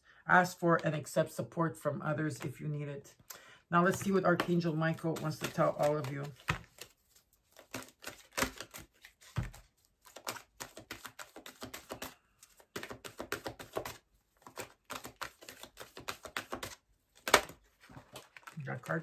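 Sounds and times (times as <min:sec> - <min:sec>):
cards shuffling: 0:03.8 - 0:19.0.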